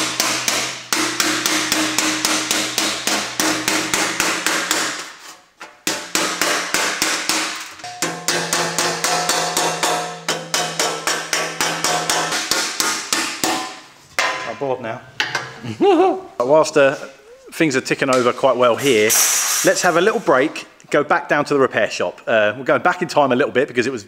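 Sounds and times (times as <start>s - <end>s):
hammer blows on sheet metal: 0.0s - 5.2s, 5.8s - 14.4s, 18.1s - 20.3s.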